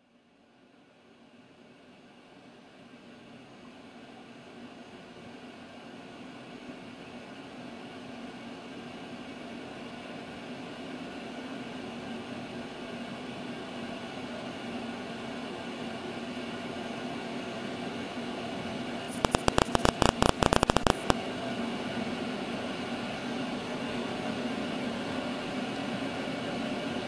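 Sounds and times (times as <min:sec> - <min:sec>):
background hum and hiss: 0:00.0 - 0:27.0
rapid loud sharp clicks: 0:19.1 - 0:21.2.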